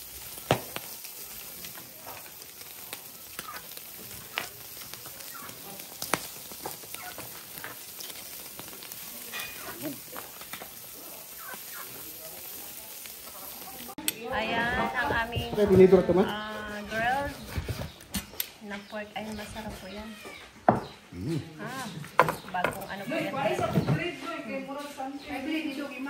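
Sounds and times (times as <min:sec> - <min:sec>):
fire crackles and pops: 0:00.0 - 0:19.0
meat sizzling on a grill: 0:00.0 - 0:20.5, 0:21.6 - 0:26.0.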